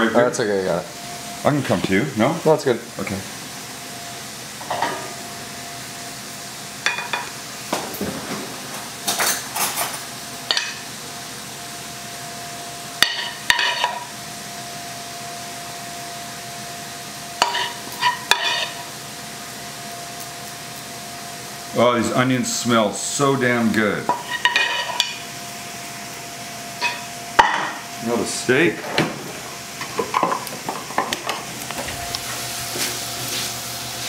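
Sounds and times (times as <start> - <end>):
faint sizzle: 0.0 - 34.0
metal utensil scraping a pan: 13.1 - 14.0, 17.4 - 18.8, 24.1 - 25.2.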